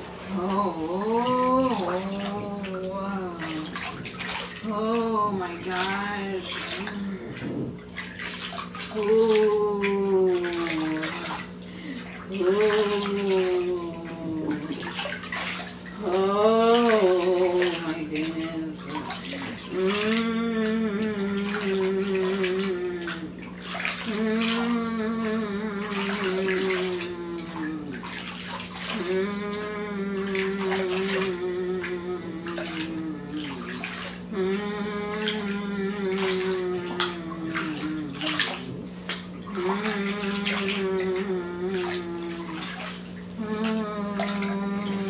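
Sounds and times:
water moving in a pool: 0.0s - 45.0s
woman moaning: 16.0s - 23.3s, 24.1s - 27.9s, 29.0s - 33.7s, 34.3s - 39.0s, 39.6s - 42.6s, 43.4s - 45.0s.

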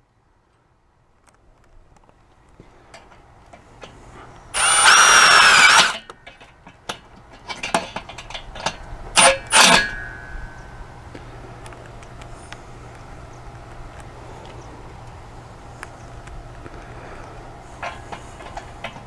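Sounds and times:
clicks and handling knocks: 1.3s - 10.3s, 17.8s - 19.0s
cordless drill whining: 4.5s - 6.1s.

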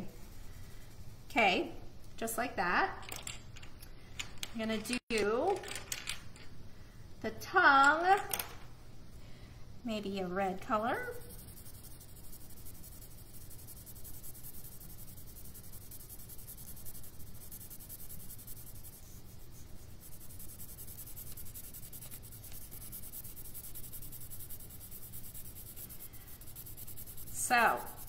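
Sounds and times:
pencil scratching on paper: 10.6s - 28.0s.

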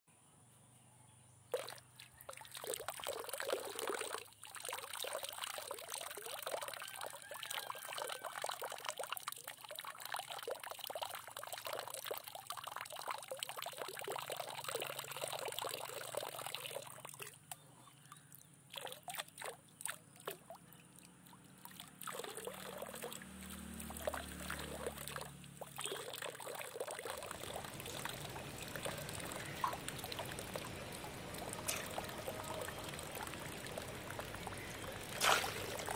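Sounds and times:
pond water trickling and splashing: 1.5s - 35.9s
low hum: 27.4s - 35.9s.

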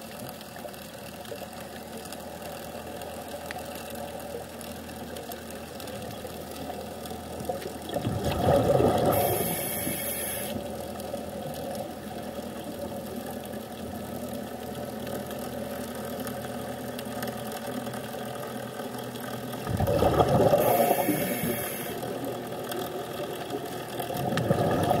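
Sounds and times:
exhaled bubbles bursting: 7.8s - 9.8s, 19.6s - 22.3s, 24.0s - 25.0s
diver breathing through regulator: 9.0s - 10.6s, 20.4s - 22.1s
high hiss: 9.2s - 10.6s, 20.6s - 22.0s.

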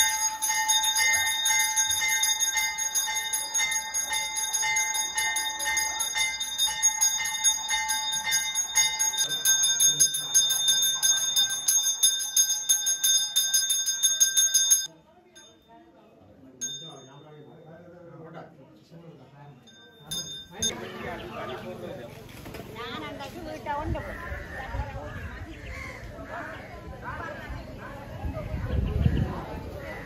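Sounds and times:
bells ringing rapidly: 0.0s - 15.6s, 16.6s - 17.6s, 19.7s - 20.9s.

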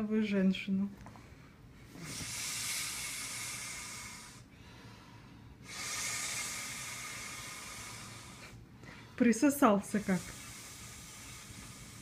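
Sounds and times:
man blowing into a valve: 5.6s - 8.5s.

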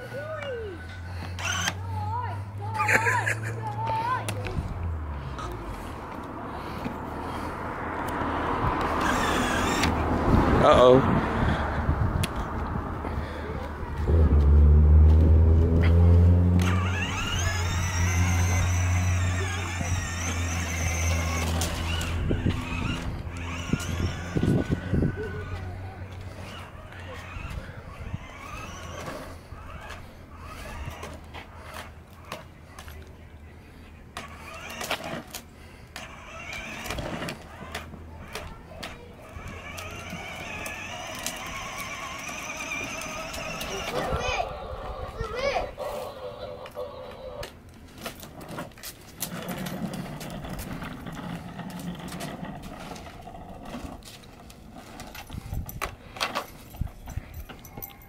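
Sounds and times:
electric toy motorbike humming: 0.0s - 58.0s
small electric motor humming: 16.5s - 25.7s.

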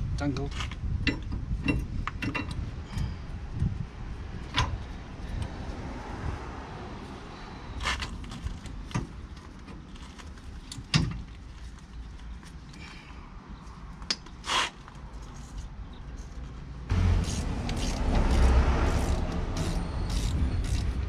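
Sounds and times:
metal clicks and knocks: 0.4s - 2.6s
steady low rumble: 16.7s - 21.0s.

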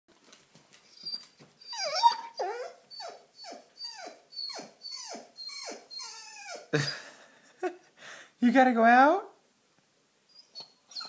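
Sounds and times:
dog whining in short cries: 0.9s - 6.7s, 10.3s - 11.0s.

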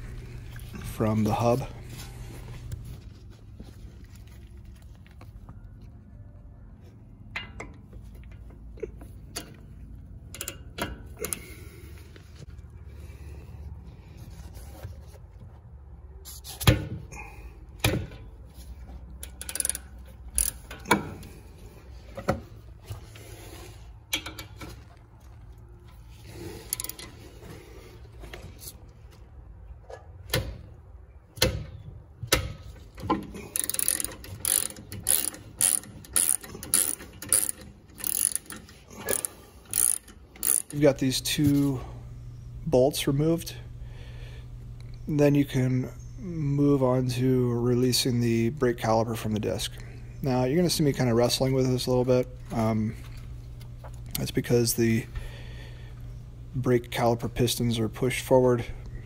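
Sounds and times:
socket ratchet clicking: 19.2s - 21.0s, 33.6s - 40.8s.

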